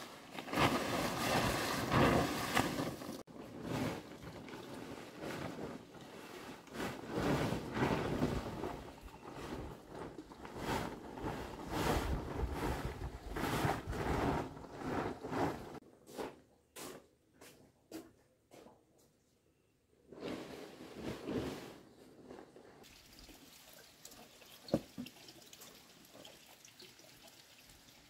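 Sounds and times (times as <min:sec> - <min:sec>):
plastic tarpaulin rustling: 0:00.0 - 0:15.8, 0:20.1 - 0:23.2.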